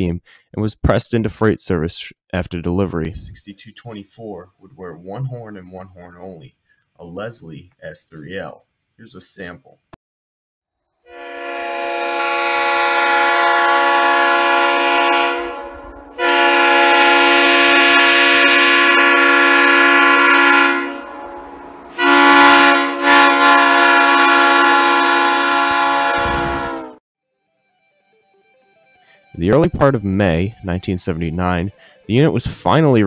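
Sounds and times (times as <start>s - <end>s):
locomotive air horn blasts: 11.1s - 27.0s.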